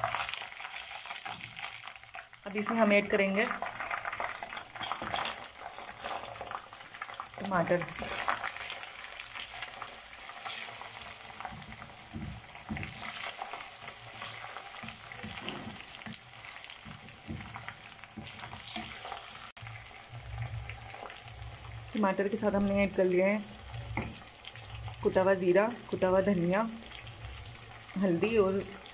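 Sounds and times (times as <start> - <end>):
food sizzling in hot oil: 0.0 - 28.9
spoon scraping and knocking pan: 10.4 - 21.3, 23.8 - 24.8.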